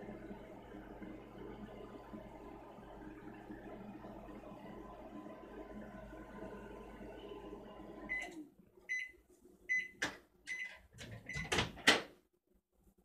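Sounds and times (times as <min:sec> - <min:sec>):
microwave oven humming: 0:00.0 - 0:08.5.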